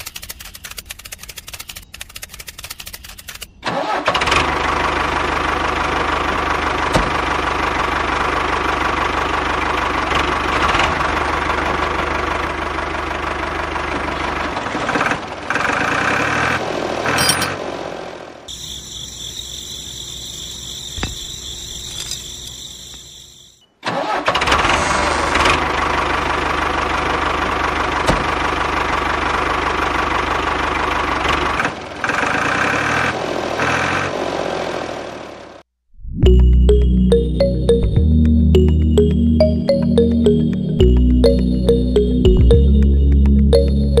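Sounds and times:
tractor engine knocking: 4.5 - 16.0
high whine: 24.5 - 26.3.

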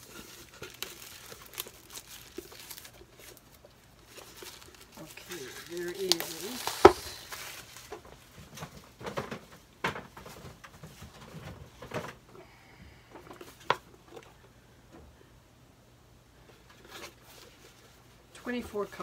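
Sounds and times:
cardboard box handling: 0.0 - 8.3
plastic wrapping rustling: 0.0 - 12.2, 16.5 - 19.0.

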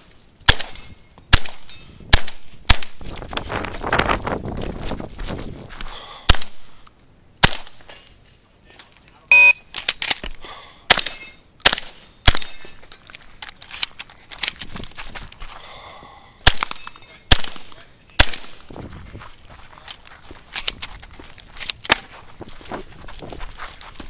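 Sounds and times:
shotgun shots: 0.5 - 3.0, 10.9 - 12.6, 16.4 - 18.6.

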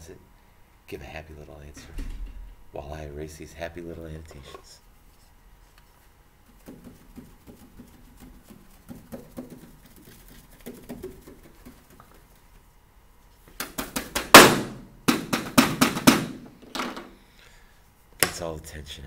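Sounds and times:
loud rapid knocks: 6.6 - 12.1, 13.6 - 16.9.

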